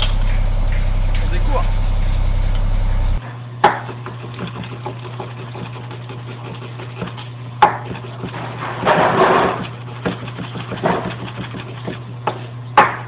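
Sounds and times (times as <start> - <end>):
loud low drone: 0.0 - 3.2
steady low hum: 0.0 - 3.2.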